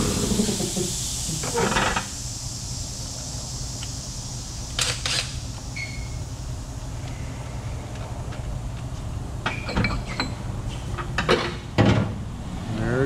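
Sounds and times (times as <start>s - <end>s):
steady low hum: 0.0s - 13.0s
short squeaks: 5.8s - 6.2s.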